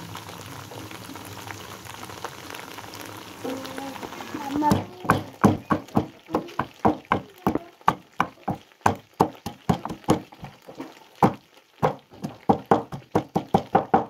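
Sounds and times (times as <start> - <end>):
wooden pestle pounding in mortar: 4.7 - 10.6, 11.2 - 14.0.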